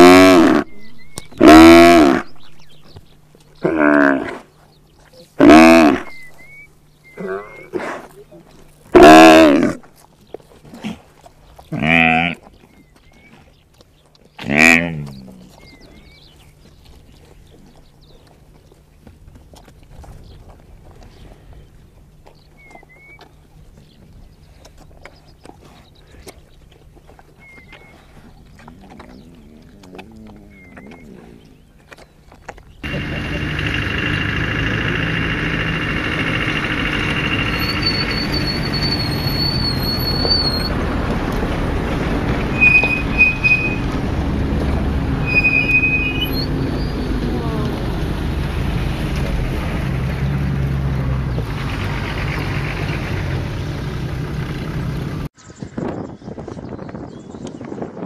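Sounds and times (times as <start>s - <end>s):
animals chewing crunches: 0.0s - 45.2s, 46.5s - 55.2s
two-note bird whistle: 42.5s - 43.8s, 45.2s - 47.0s.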